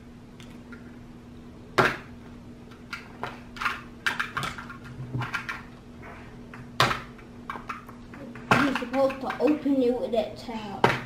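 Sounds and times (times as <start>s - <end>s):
faint steady hum: 0.0s - 11.0s
scratching and crinkling clicks: 6.5s - 9.9s.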